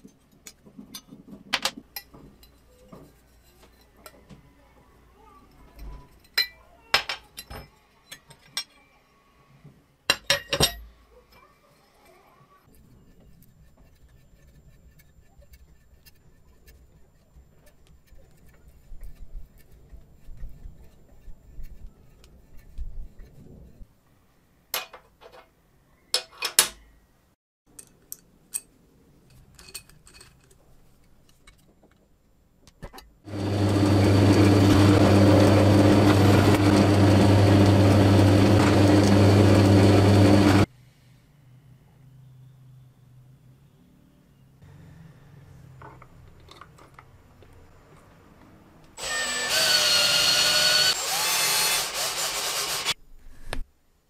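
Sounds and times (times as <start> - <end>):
handling of parts: 0.0 - 4.4, 24.7 - 26.9, 27.7 - 33.2, 45.8 - 48.2
power drill whine: 33.3 - 40.7, 49.0 - 53.0.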